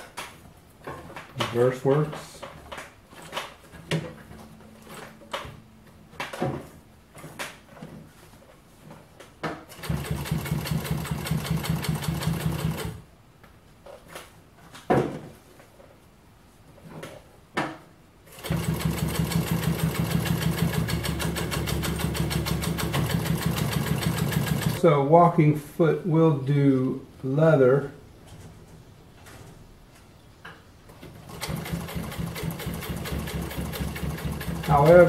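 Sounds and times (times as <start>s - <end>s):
industrial sewing machine stitching: 9.7s - 13.0s, 18.3s - 24.8s, 31.1s - 35.0s.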